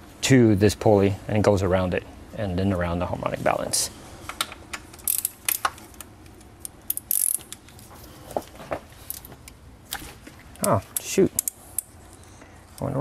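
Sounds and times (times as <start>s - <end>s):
ratchet wrench clicking: 5.0s - 5.8s, 6.6s - 7.6s, 11.0s - 11.9s.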